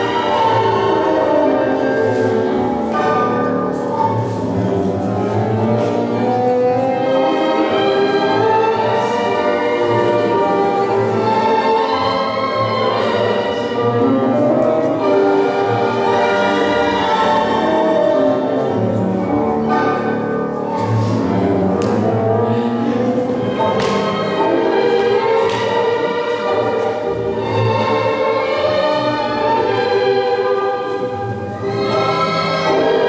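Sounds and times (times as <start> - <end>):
orchestra playing tango music: 0.0 - 33.0.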